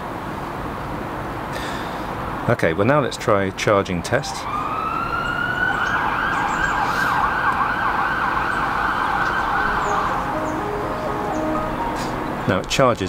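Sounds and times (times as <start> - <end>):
emergency siren wailing and yelping: 4.3 - 12.5.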